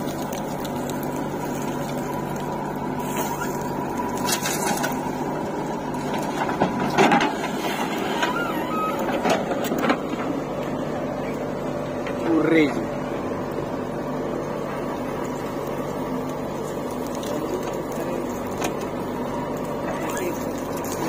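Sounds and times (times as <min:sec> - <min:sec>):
falling earth: 0:00.0 - 0:11.4
diesel engine under load: 0:00.0 - 0:21.0
bucket knocks and clanks: 0:06.3 - 0:08.4.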